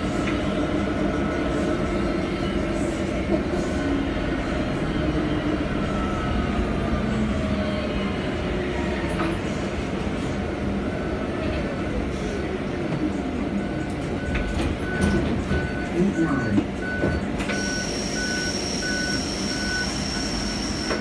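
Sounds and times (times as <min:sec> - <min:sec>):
bus road and body rumble: 0:00.0 - 0:21.0.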